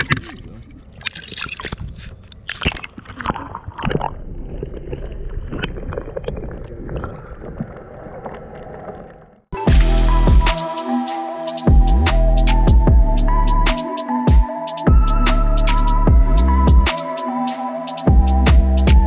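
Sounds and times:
underwater sloshing and gurgling: 0.0 - 9.5.

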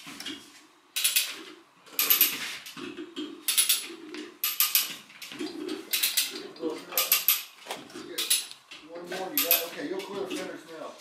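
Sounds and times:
ratchet clicking: 4.4 - 4.9.

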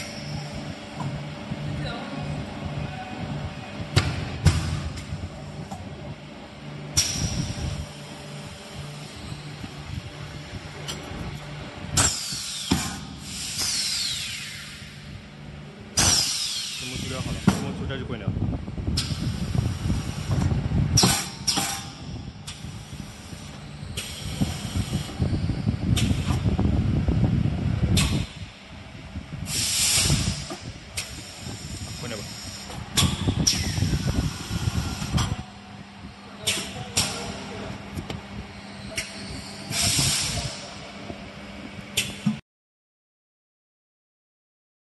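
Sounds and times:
low machine hum: 0.0 - 42.4
machine motion rumble: 0.0 - 42.4
pneumatic cylinders clicking: 6.9 - 7.8, 12.0 - 14.9, 16.0 - 17.7, 19.0 - 25.3, 25.9 - 26.5, 27.9 - 28.5, 29.4 - 35.5, 36.4 - 38.2, 38.8 - 40.8, 42.0 - 42.4
compressed air hissing: 12.0 - 15.0, 16.0 - 17.5, 21.0 - 25.4, 29.4 - 35.2, 39.1 - 40.8.

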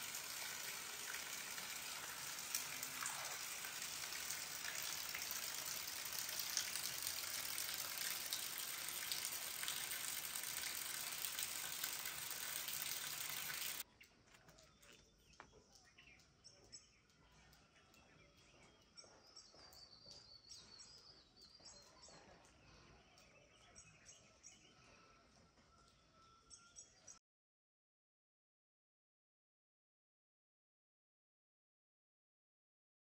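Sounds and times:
steady rain falling: 0.0 - 13.8.

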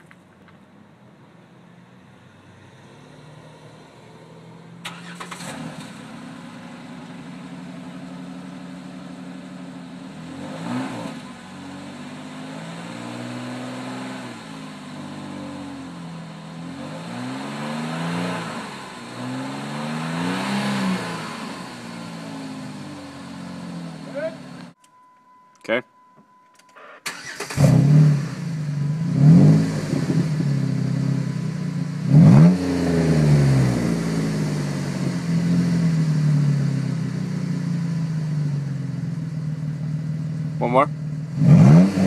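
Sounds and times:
car engine starting: 1.9 - 24.8, 26.5 - 42.0
car engine revving: 2.6 - 24.8, 27.1 - 42.0
car engine idling: 3.9 - 13.4, 14.2 - 16.8, 21.2 - 24.8, 32.8 - 41.4.

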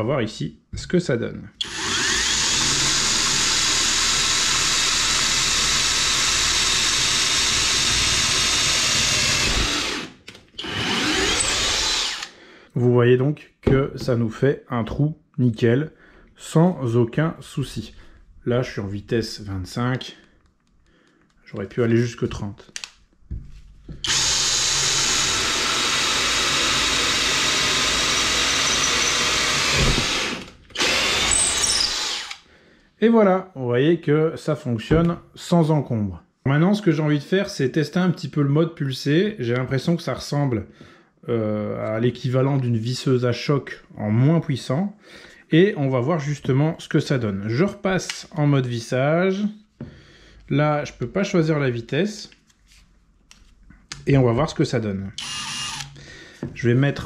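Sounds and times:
cordless drill boring into wood: 1.6 - 12.4, 24.0 - 32.4, 55.2 - 56.0.

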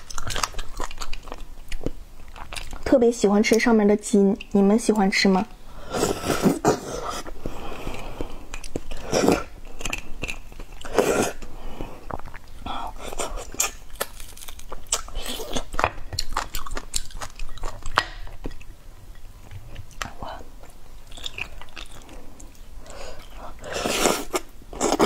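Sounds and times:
chewing tendon on bone: 0.0 - 2.9, 13.4 - 18.7.

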